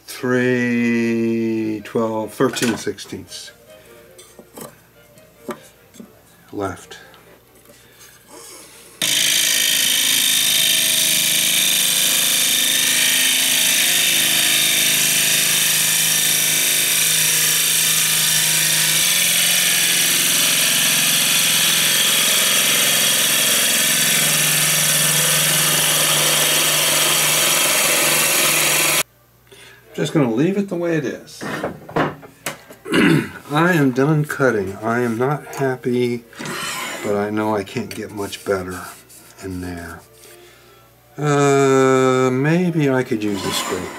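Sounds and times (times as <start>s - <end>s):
lathe motor hum: 9.0s - 29.0s
gouge cutting wood hiss: 9.1s - 29.0s.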